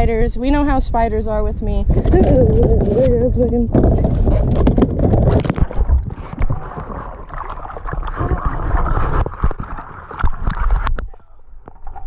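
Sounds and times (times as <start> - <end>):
knocks against a kayak: 1.9 - 6.9
water splashing and gurgling: 1.9 - 12.0.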